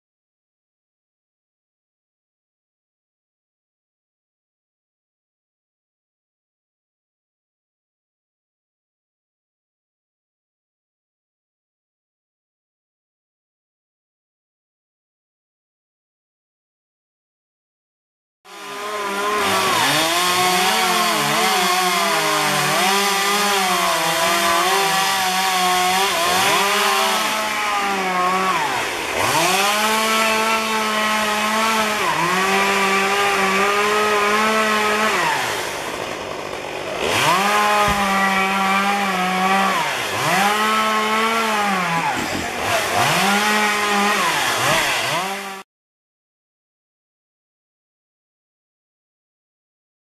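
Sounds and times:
chainsaw cutting tree limbs: 18.5s - 45.7s.

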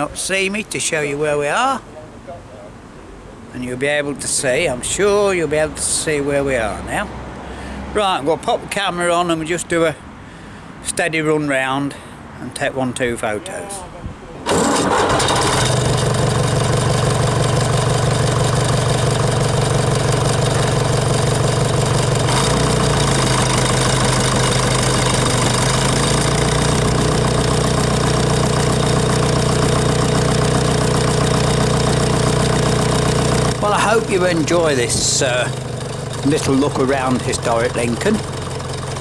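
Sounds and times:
tractor engine running: 14.5s - 39.0s.

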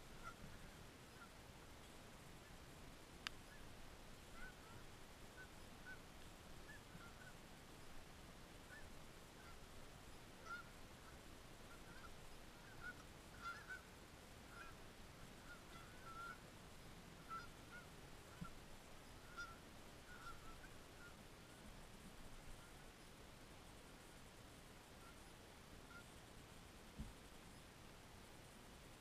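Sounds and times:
distant geese honking: 0.0s - 2.7s, 3.3s - 8.0s, 8.6s - 23.1s, 25.0s - 26.2s.

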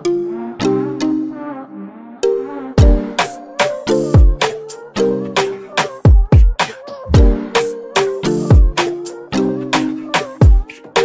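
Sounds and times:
electronic kick drums: 2.8s - 3.1s, 4.2s - 4.5s, 6.0s - 7.5s, 8.5s - 8.8s, 10.4s - 10.7s.

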